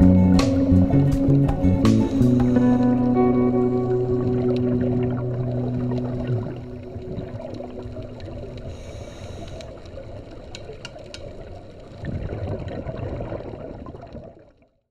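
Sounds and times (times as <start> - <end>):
muffled underwater noise: 0.0 - 13.4
bubbling rush: 0.0 - 14.5.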